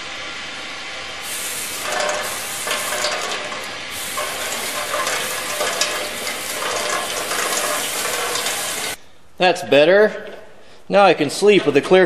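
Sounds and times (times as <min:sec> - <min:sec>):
water sizzling on hot steel: 0:01.2 - 0:09.0
water splashing: 0:01.3 - 0:09.0.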